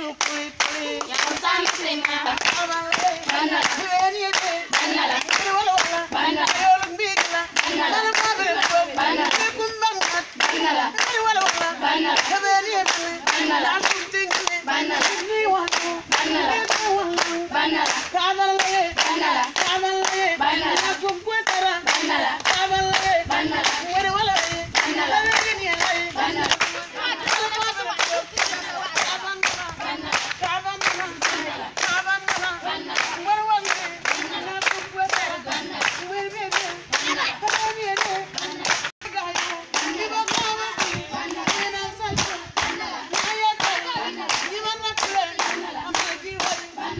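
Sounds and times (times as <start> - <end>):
hand claps: 0.0 - 46.7
group of women singing: 0.0 - 46.9.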